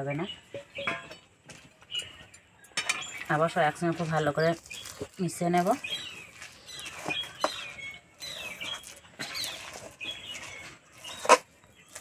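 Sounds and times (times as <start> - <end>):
small birds chirping: 0.0 - 12.0
metal spatula scraping steel pan: 5.9 - 11.5.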